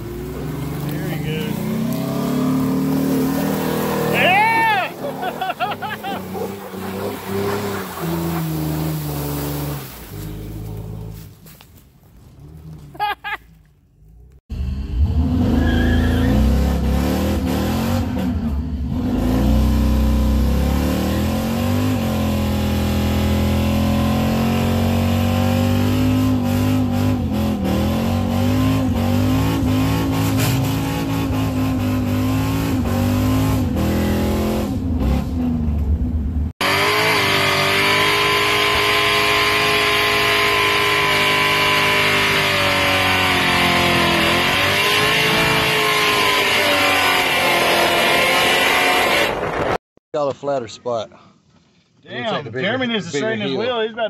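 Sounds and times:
car engine at high revs: 0.0s - 11.2s, 14.5s - 49.8s
truck engine driving: 0.0s - 49.8s
tire squeal: 1.2s - 11.6s, 14.6s - 17.0s, 36.6s - 49.4s.

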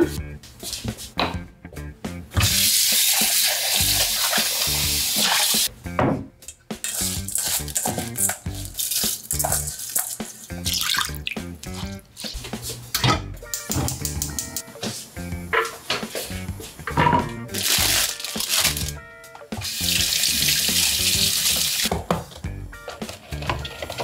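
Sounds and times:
background music: 0.0s - 24.0s
kitchen clicks and knocks: 6.0s - 10.5s, 12.2s - 16.3s, 16.9s - 17.4s.

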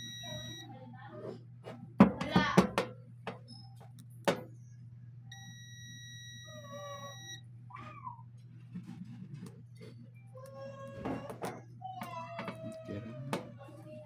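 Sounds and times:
multimeter continuity beep: 0.0s - 0.7s, 5.3s - 7.5s
steady low hum: 0.0s - 14.0s
cat meowing faintly: 6.6s - 8.3s.

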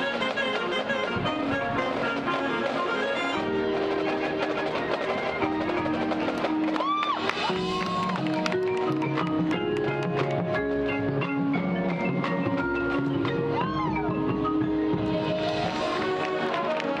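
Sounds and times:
wind and brass chords: 0.0s - 11.3s, 13.0s - 17.0s
drums and mallet percussion: 0.0s - 17.0s.

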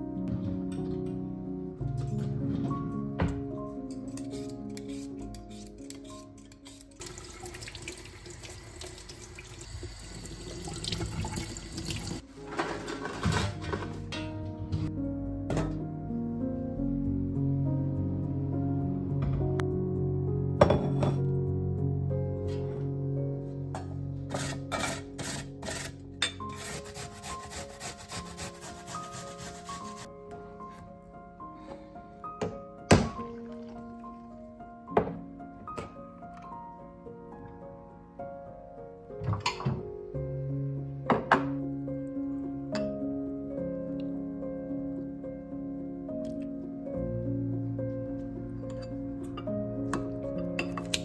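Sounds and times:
potato grated on metal grater: 24.3s - 30.1s.

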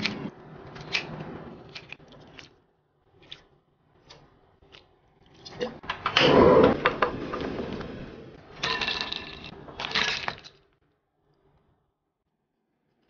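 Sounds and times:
ice cubes clinking in bowl: 8.6s - 10.6s.

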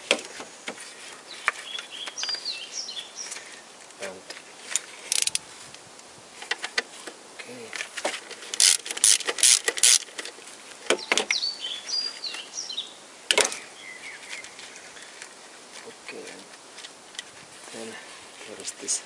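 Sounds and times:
socket wrench clicking: 5.1s - 5.4s, 8.6s - 10.1s.

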